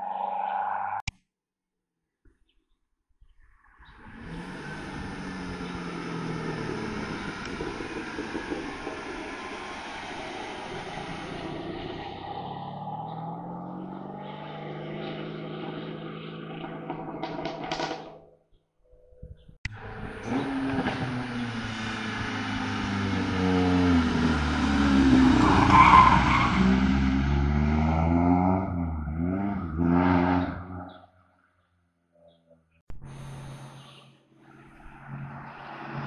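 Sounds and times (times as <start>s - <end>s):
car engine revving: 4.0s - 17.8s, 19.7s - 31.0s
race car engine at speed: 4.0s - 18.2s, 19.7s - 31.0s, 34.7s - 36.0s.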